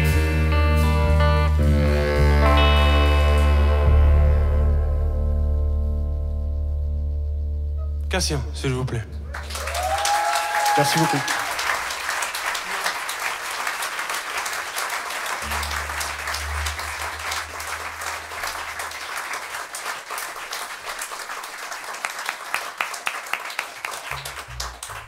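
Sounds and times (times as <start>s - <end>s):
low bass note: 0.0s - 9.3s, 15.4s - 19.1s
audience applauding: 9.3s - 25.0s.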